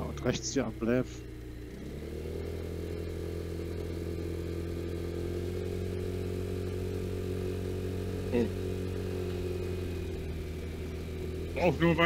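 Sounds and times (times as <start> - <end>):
scooter engine cruising: 0.0 - 12.0.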